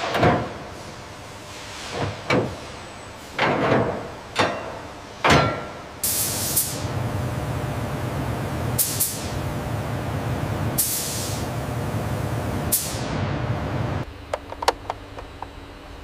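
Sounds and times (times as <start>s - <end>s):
spray gun hissing: 6.0s - 13.2s.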